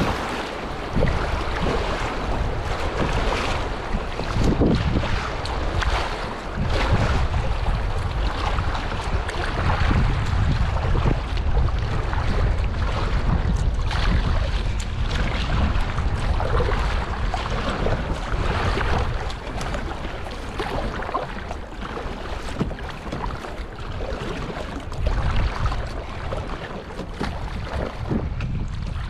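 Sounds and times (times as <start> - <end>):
river water rushing: 0.0 - 3.7
paddle stroke splashes: 0.0 - 29.0
wind buffeting microphone: 0.0 - 29.0.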